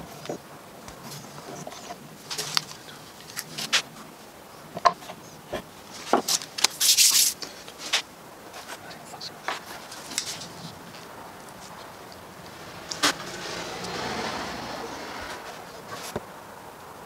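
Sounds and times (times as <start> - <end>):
scraping rub: 4.7 - 16.2.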